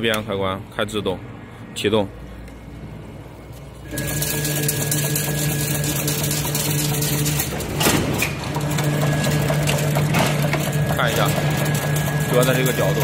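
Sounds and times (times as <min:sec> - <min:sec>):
machine motor humming: 0:03.8 - 0:13.0.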